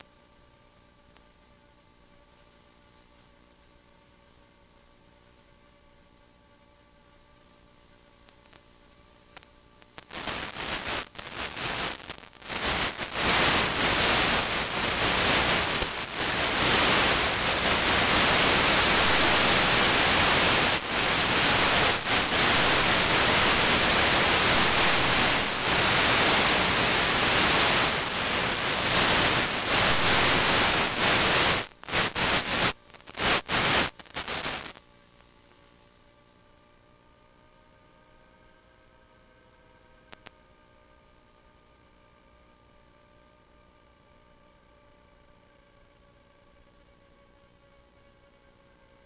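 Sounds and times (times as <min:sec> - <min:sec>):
radio static hiss: 0:00.0 - 0:00.3, 0:07.1 - 0:36.0, 0:40.1 - 0:40.5.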